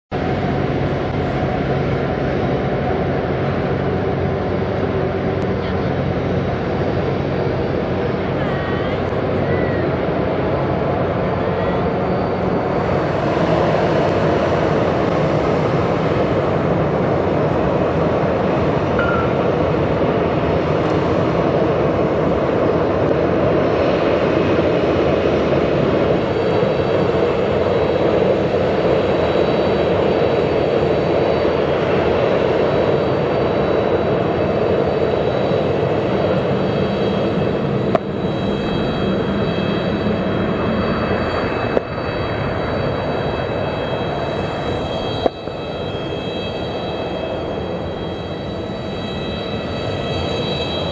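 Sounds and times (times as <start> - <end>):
jet engines idling: 0.1 - 50.9
thin high whine: 0.2 - 22.3, 24.2 - 50.9.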